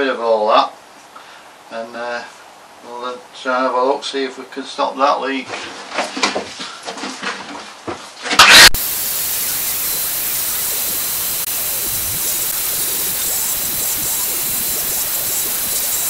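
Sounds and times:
hose sucking up water: 8.7 - 16.0
wet and dry vacuum cleaner running: 8.8 - 16.0.

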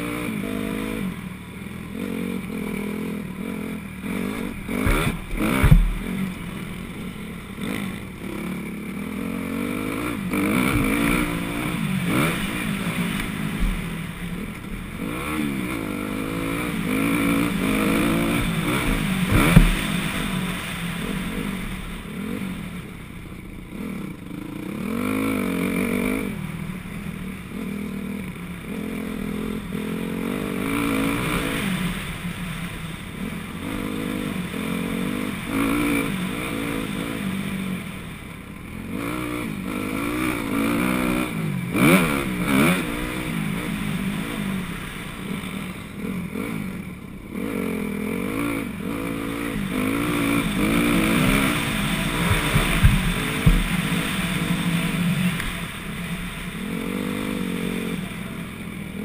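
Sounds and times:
dirt bike engine revving: 0.0 - 59.0
sharp thumps: 4.1 - 7.0, 10.6 - 14.6, 17.6 - 20.3, 50.0 - 54.3.

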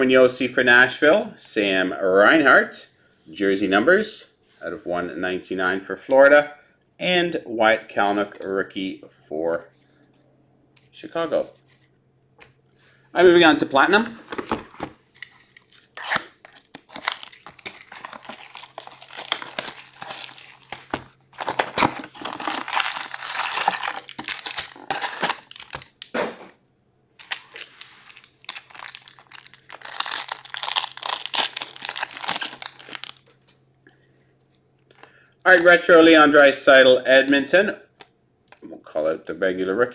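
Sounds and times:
cardboard and foil crinkling and tearing: 15.6 - 26.0, 27.2 - 33.2.

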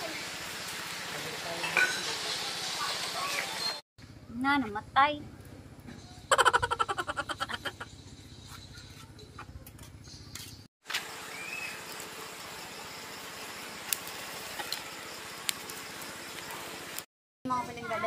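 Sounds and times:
fire crackling: 0.0 - 1.5, 10.9 - 17.1
charcoal fire hissing: 0.0 - 3.8, 10.8 - 17.1.

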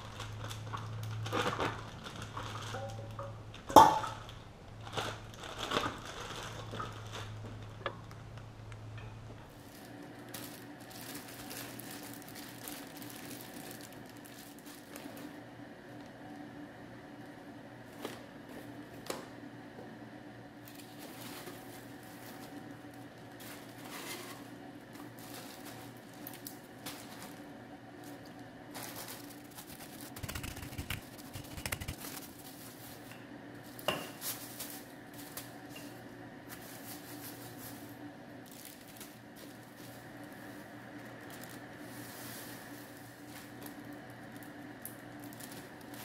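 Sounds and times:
steady hum: 21.6 - 46.0.

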